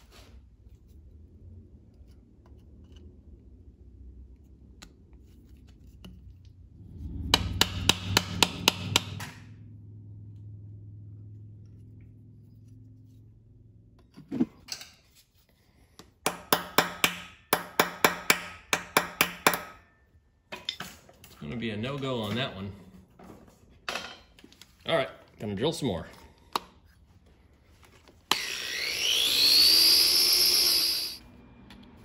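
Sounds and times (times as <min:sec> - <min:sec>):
hammer tapping metal: 0:07.3 - 0:09.4, 0:16.2 - 0:20.0.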